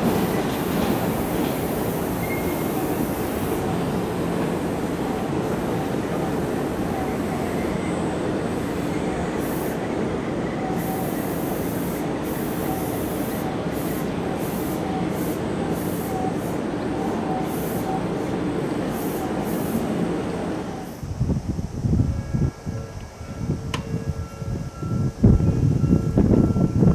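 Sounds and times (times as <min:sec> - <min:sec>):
high hiss bursts: 0:00.0 - 0:22.0
train wheels rumbling on rail: 0:00.0 - 0:26.9.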